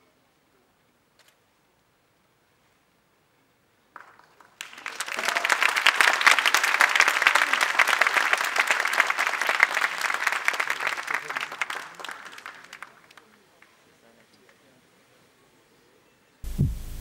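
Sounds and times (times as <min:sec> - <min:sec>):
audience applauding: 0:04.0 - 0:13.7.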